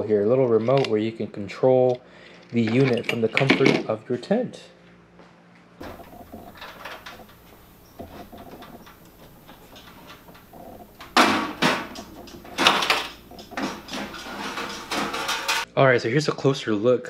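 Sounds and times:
fiddling and rustling: 0:05.8 - 0:15.7
metal cover scraping clatters: 0:05.8 - 0:15.7.

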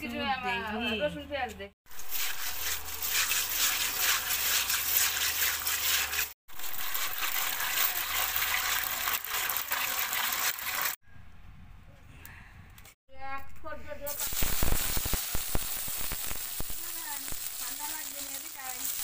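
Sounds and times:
hands rubbing fish in water: 0:01.9 - 0:11.0
water pouring into a bowl: 0:01.9 - 0:11.0.

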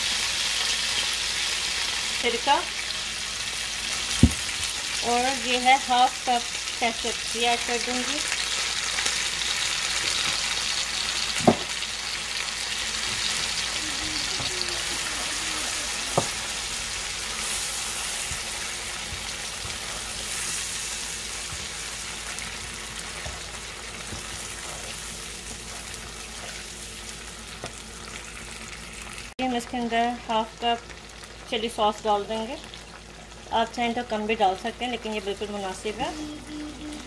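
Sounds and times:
vegetables sizzling in hot oil: 0:00.0 - 0:37.0
sharp knocks: 0:11.4 - 0:11.7
spoon stirring in pan: 0:14.2 - 0:26.8.

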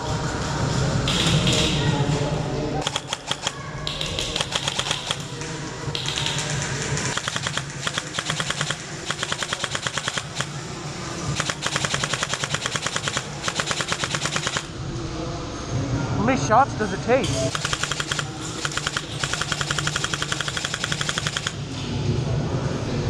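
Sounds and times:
airsoft rifles firing bursts: 0:02.8 - 0:14.8, 0:17.5 - 0:21.6.

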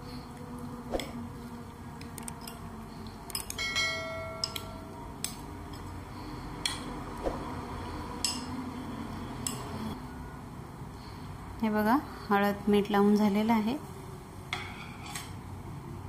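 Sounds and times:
bright ringing chime: 0:03.6 - 0:05.0.

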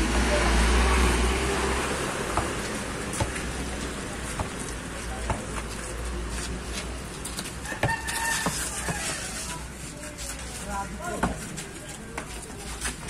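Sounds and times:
basketball bouncing on concrete: 0:02.3 - 0:03.6, 0:04.2 - 0:05.6, 0:07.6 - 0:09.0, 0:11.1 - 0:11.5.

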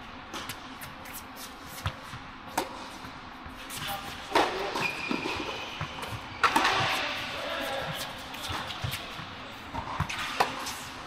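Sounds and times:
racket hitting tennis ball: 0:00.3 - 0:11.0
shoe squeak: 0:03.8 - 0:09.2.

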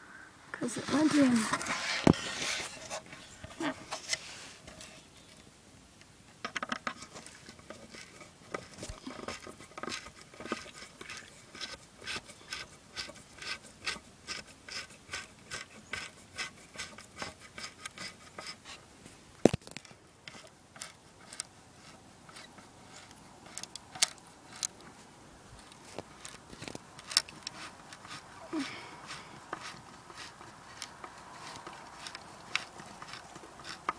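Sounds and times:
screw creaking into wood: 0:06.4 - 0:18.6, 0:19.6 - 0:24.8, 0:25.6 - 0:33.9.

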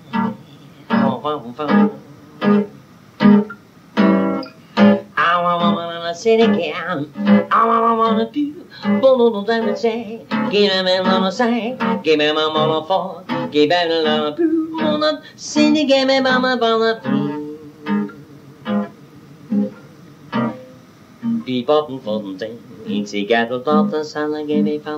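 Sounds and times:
strummed acoustic guitar: 0:00.0 - 0:24.9
man singing: 0:00.9 - 0:02.7, 0:05.0 - 0:20.0, 0:21.3 - 0:24.9.

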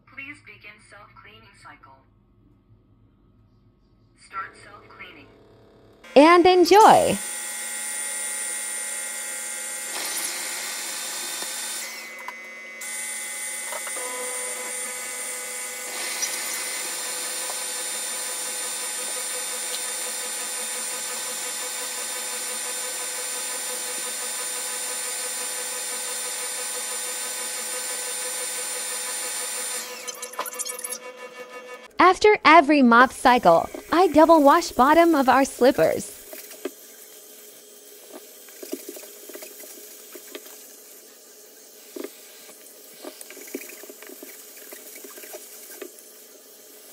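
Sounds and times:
floor washer motor whining: 0:06.9 - 0:32.0, 0:33.3 - 0:41.1.

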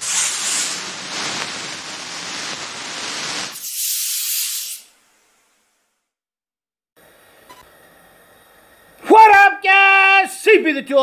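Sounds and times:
loud rushing hiss: 0:00.0 - 0:04.9
bright high hiss: 0:00.0 - 0:05.3.

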